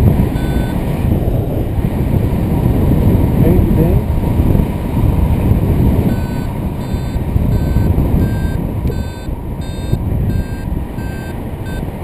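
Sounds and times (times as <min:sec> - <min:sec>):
wind rush on microphone: 0:00.0 - 0:12.0
variometer beeping: 0:00.3 - 0:00.8, 0:06.0 - 0:12.0.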